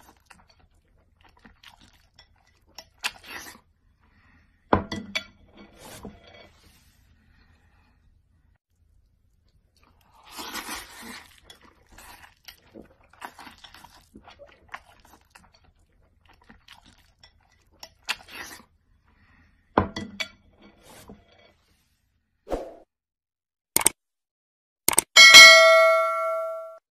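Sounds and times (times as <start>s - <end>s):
chewing and crunching: 0.0s - 4.2s, 8.8s - 19.4s
slurping noodles: 3.0s - 4.3s, 9.6s - 19.5s.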